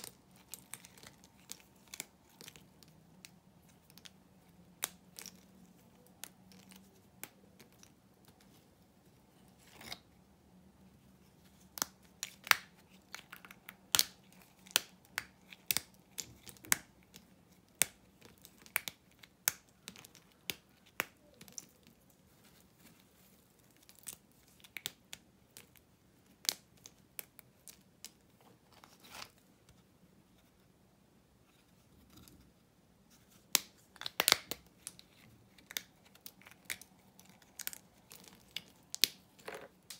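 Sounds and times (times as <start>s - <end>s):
bar soap snapping: 0.0s - 8.4s, 11.6s - 21.9s, 23.7s - 28.2s, 33.5s - 39.9s.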